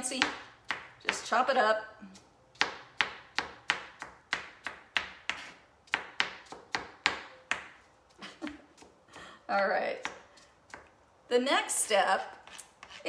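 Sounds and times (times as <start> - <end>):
knife chopping on cutting board: 2.5 - 7.7.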